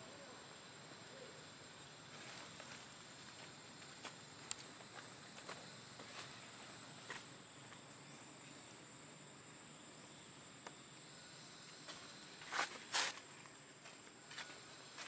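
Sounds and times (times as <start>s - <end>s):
faint outdoor hiss: 0.0s - 15.0s
high-pitched insect drone: 0.0s - 15.0s
crackly rustle: 2.1s - 8.0s.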